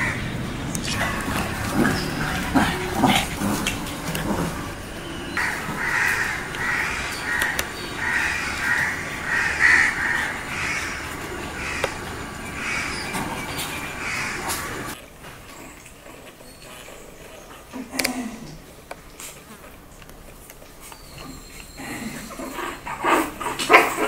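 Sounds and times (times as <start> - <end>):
crow cawing: 0.0 - 0.3, 5.3 - 13.1, 13.9 - 14.9.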